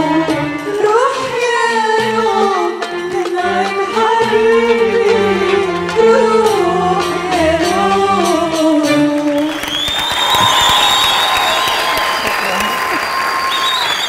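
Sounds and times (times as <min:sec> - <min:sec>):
women singing a duet: 0:00.0 - 0:09.5.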